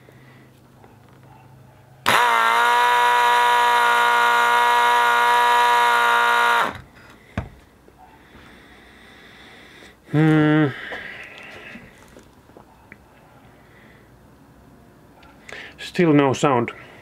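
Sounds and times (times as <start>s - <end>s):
air horn compressor buzzing whine: 2.0s - 6.9s.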